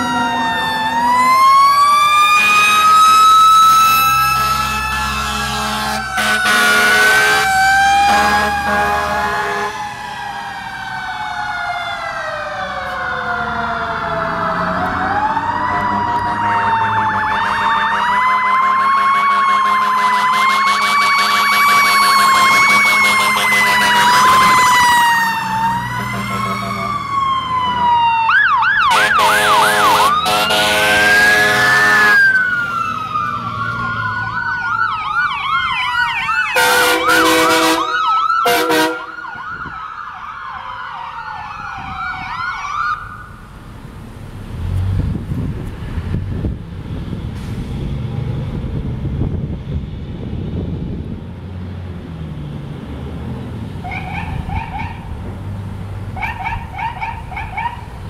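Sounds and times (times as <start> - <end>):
fire engine sirens wailing: 0.0 - 58.0
air horn blasts: 4.4 - 9.8, 17.4 - 24.8, 28.9 - 32.4, 36.6 - 39.2.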